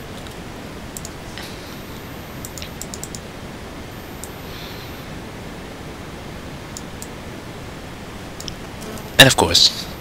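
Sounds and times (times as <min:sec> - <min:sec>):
microphone hiss: 0:00.0 - 0:10.0
computer keys clicking: 0:00.1 - 0:01.2, 0:02.4 - 0:03.2
mouse buttons clicking: 0:02.4 - 0:03.2.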